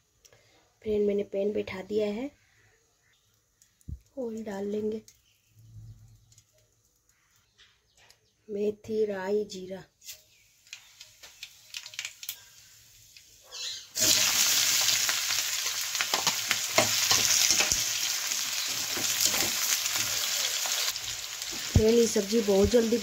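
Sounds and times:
vegetables sizzling in hot oil: 10.0 - 23.0.

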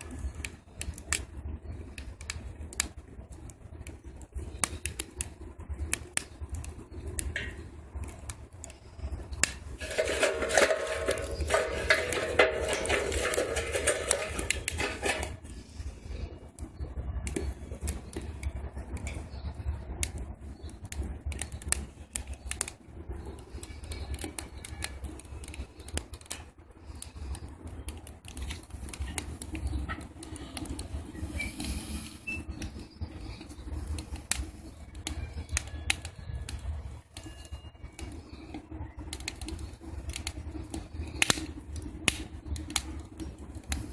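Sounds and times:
low steady stove rumble: 0.0 - 43.9
wood fire crackling and popping: 0.0 - 43.9
sticks pushed into stove: 9.4 - 15.5.

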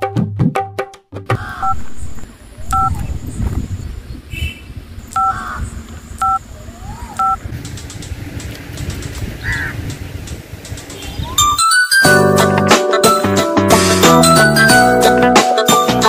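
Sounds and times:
phone keypad beeps: 2.7 - 3.1, 5.2 - 5.4, 7.2 - 7.4.

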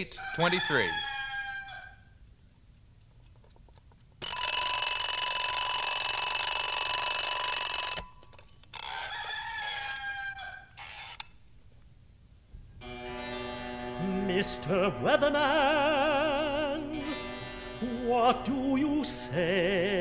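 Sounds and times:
rooster crowing: 0.2 - 2.2, 8.8 - 11.0
alarm clock bell ringing: 4.2 - 8.2.

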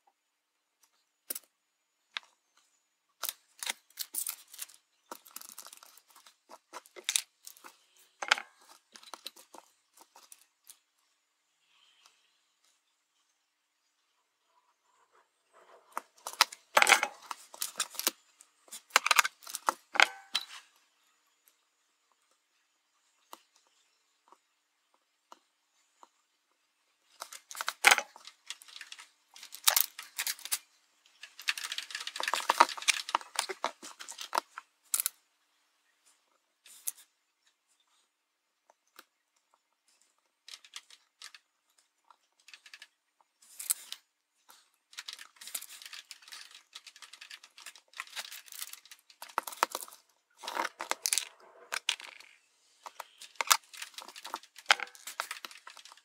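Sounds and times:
rustling of tape and parts: 0.7 - 13.3, 13.9 - 56.0
sharp small clicks: 0.8 - 1.5, 27.0 - 35.2, 38.7 - 56.0.

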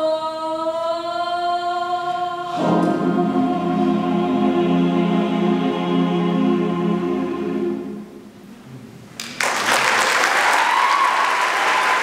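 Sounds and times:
choir singing: 0.0 - 8.4
audience applauding: 9.2 - 12.0.

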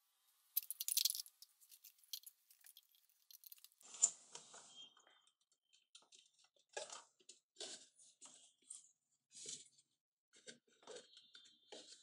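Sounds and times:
plastic mug clicks and crackles: 0.6 - 3.8.

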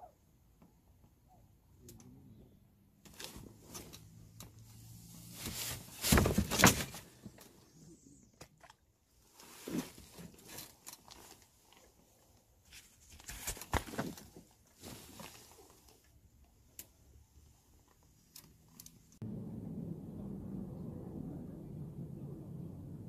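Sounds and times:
small clicks and rustles: 8.3 - 19.2.

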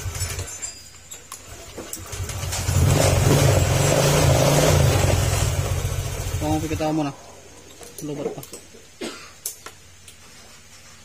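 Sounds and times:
scooter engine revving: 1.5 - 6.9.

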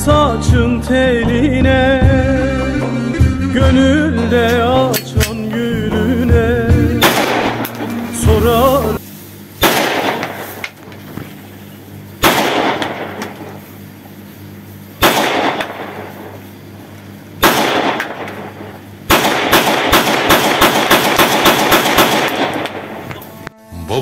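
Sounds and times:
pistol shots with echo: 7.0 - 7.9, 9.6 - 10.6, 12.2 - 13.5, 15.0 - 16.3, 17.4 - 23.2
rapid pistol shots: 7.0 - 8.0, 9.6 - 10.6, 12.2 - 13.6, 15.0 - 16.4, 17.4 - 23.1.

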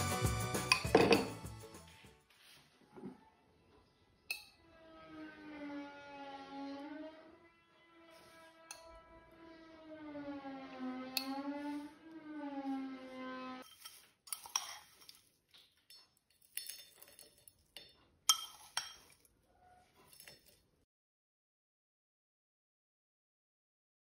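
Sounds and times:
spoon clinking on bowl and glass: 0.7 - 1.4, 13.6 - 15.2, 15.8 - 19.3, 20.1 - 20.6
sustained pitched tone: 4.8 - 13.6.

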